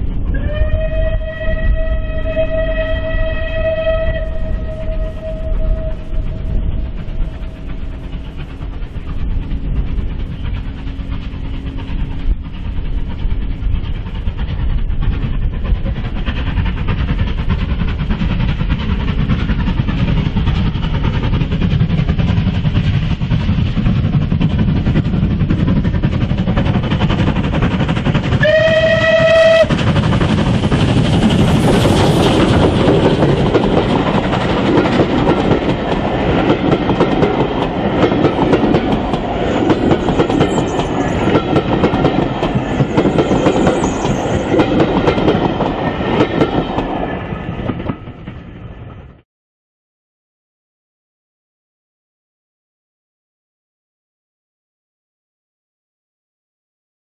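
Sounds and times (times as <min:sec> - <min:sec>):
steam locomotive running: 0:00.0 - 0:49.2
steam whistle: 0:00.3 - 0:07.6, 0:28.4 - 0:29.8
coaches clattering on rails: 0:17.5 - 0:48.5.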